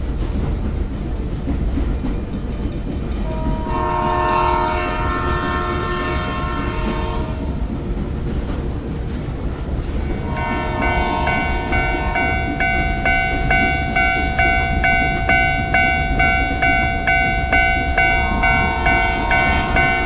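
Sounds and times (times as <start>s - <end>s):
train rumbling: 0.0s - 20.0s
train horn blast: 3.2s - 7.7s, 10.1s - 20.0s.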